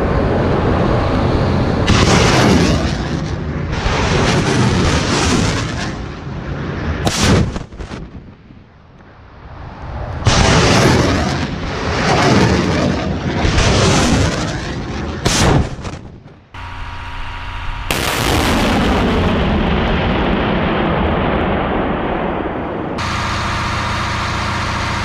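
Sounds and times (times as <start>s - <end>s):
sharp burst: 15.2s - 19.6s, 23.0s - 25.0s
steady hum: 16.4s - 18.9s, 23.0s - 25.0s
rocket exhaust rushing: 23.0s - 25.0s.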